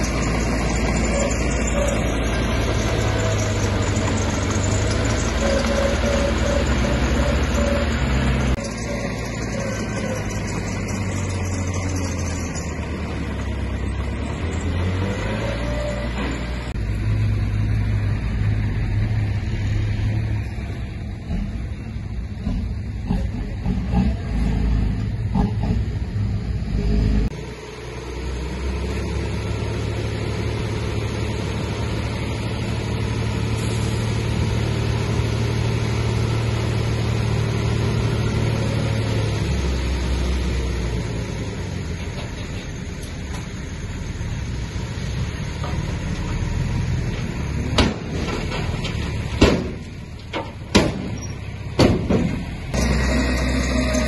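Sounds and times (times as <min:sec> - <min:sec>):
heavy machinery diesel engine: 0:00.0 - 0:54.0
sharp knocks: 0:49.4 - 0:51.2, 0:51.8 - 0:52.5.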